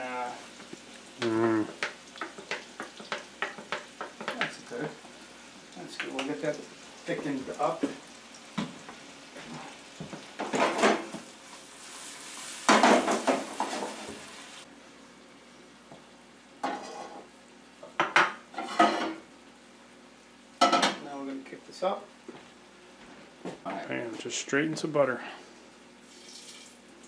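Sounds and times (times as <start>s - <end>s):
vegetables sizzling in frying pan: 0.0s - 22.7s, 25.7s - 27.0s
pans and utensils clattering: 1.4s - 5.0s, 10.4s - 11.2s, 12.7s - 14.2s, 16.6s - 17.3s, 17.9s - 19.2s, 20.6s - 21.0s.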